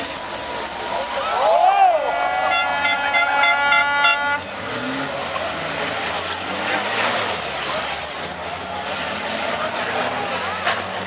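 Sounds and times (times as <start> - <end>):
distant truck engines rumbling: 0.0 - 11.0
horn blaring high tone: 2.2 - 4.4.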